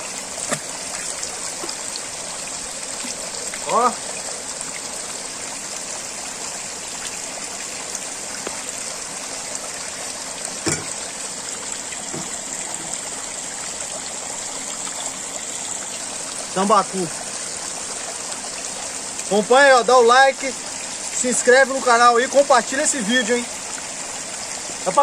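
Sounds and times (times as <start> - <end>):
water streams splashing into tank: 0.0 - 14.0.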